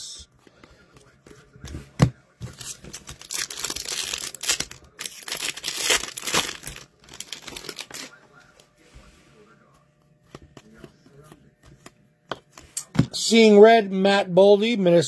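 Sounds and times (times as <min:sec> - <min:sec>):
foil wrapper crinkling: 0:02.6 - 0:08.2.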